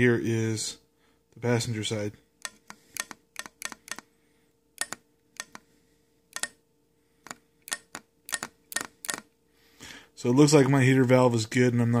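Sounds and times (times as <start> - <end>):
solenoid valve clicking: 2.4 - 4.1, 4.8 - 5.6, 6.3 - 6.6, 7.2 - 9.3.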